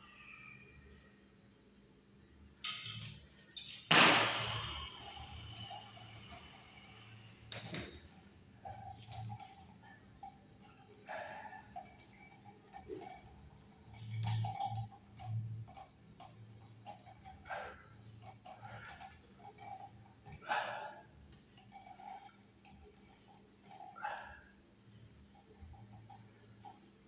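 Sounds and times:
pliers clicking and scraping on wires: 2.5 - 3.9
wires rustling: 7.4 - 27.0.

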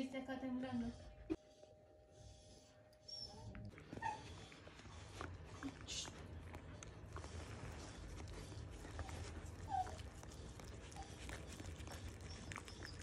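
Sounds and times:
dog whimpering: 3.1 - 6.2, 6.8 - 13.0.

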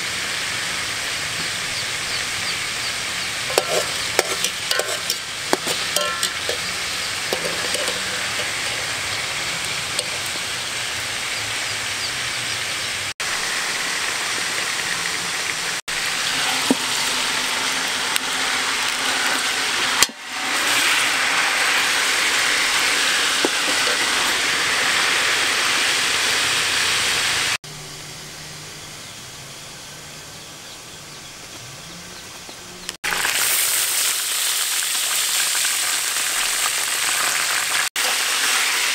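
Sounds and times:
chicken sizzling in pot: 0.0 - 27.6, 33.0 - 38.9
metal spoon scraping pot: 3.5 - 10.6, 22.6 - 24.4.

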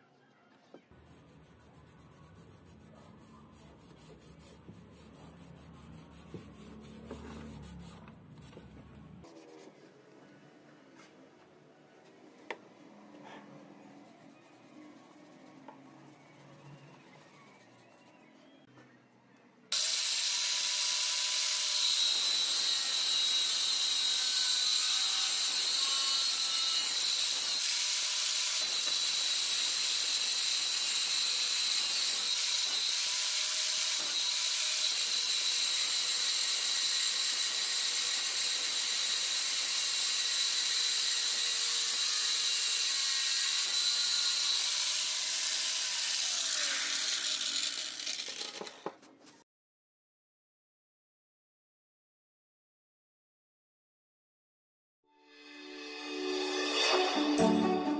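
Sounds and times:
angle grinder cutting steel: 19.7 - 48.6.

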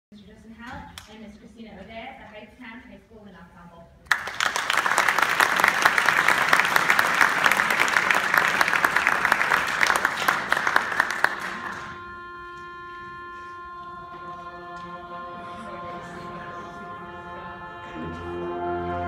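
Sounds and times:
audience applause: 4.1 - 12.0
concert band sustained chord: 10.9 - 19.0.

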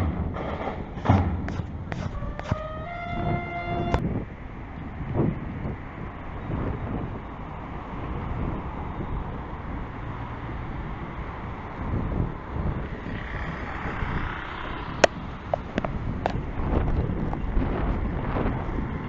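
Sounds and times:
car tyre noise: 0.0 - 3.2, 12.6 - 19.0
rumble of passing cars: 0.0 - 19.0.

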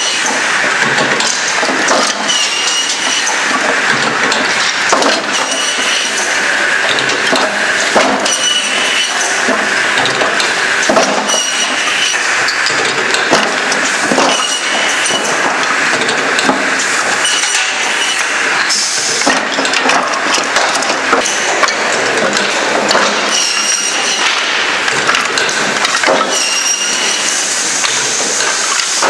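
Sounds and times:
machinery running: 0.0 - 29.0.

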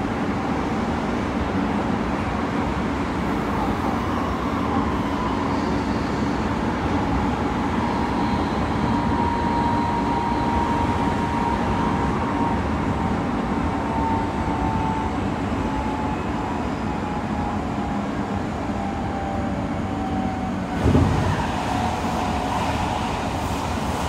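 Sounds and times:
train wheels rumbling on rails: 0.0 - 24.0
loud thump: 20.8 - 21.4.

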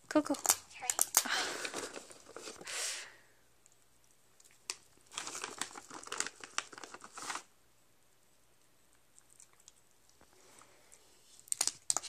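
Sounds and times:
plastic bag crinkling: 0.3 - 2.8, 4.5 - 7.5.

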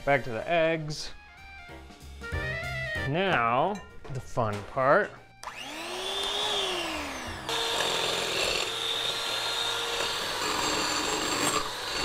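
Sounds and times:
electric hand mixer whining: 5.4 - 12.0.

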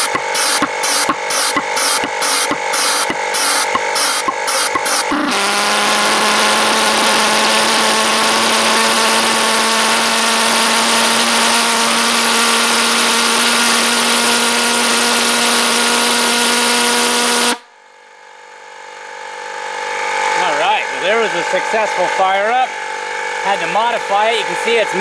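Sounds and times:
harsh rushing hiss: 0.0 - 5.2
pulse jet engine buzzing: 0.0 - 17.7, 19.2 - 25.0.

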